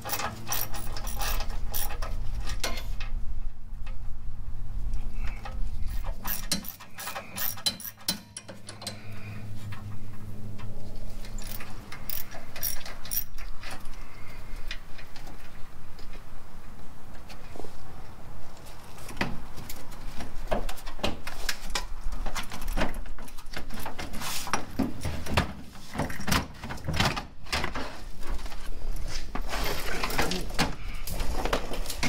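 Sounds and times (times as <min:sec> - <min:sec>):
ratchet wrench clicking: 0:00.0 - 0:02.0, 0:06.2 - 0:09.0, 0:11.4 - 0:13.3
steady low hum: 0:00.0 - 0:19.0.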